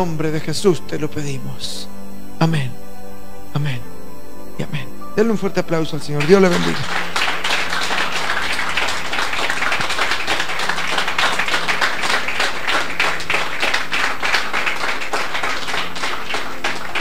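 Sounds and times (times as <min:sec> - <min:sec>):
crowd clapping: 0:06.2 - 0:17.0.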